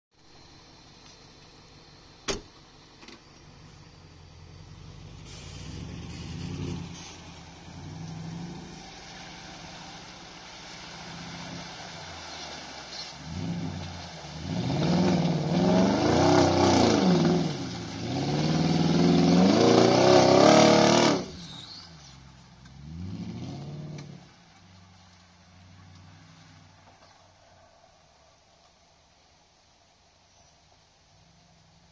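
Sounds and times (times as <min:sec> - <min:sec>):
car engine revving hard: 0:13.2 - 0:21.4, 0:22.8 - 0:24.3.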